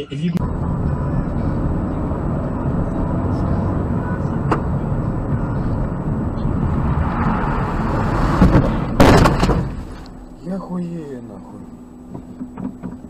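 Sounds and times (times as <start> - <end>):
road and engine noise inside car: 0.0 - 13.0
car collision bangs: 6.0 - 10.2.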